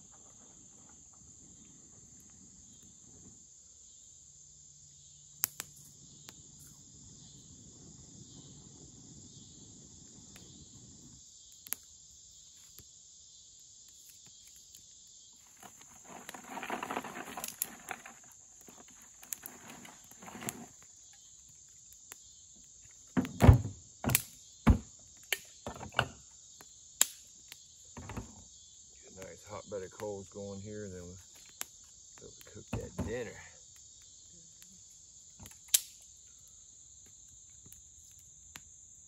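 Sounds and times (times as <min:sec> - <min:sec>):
insect chorus: 0:00.0 - 0:39.0
sticks snapping: 0:05.4 - 0:05.7, 0:27.0 - 0:27.2, 0:35.4 - 0:36.1.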